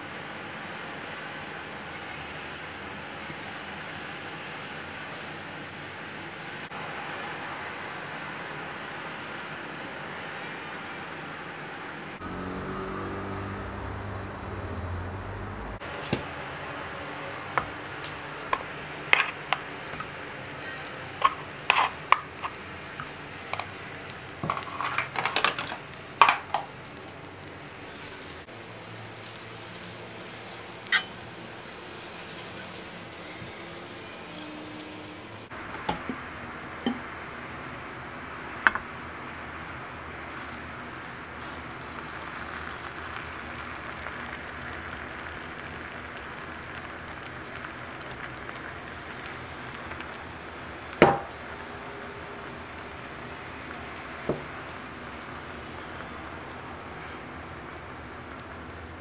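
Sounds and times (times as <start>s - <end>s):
utensils tapping a frying pan: 17.6s - 36.2s
food sizzling in a pan: 20.0s - 35.5s, 40.3s - 59.0s.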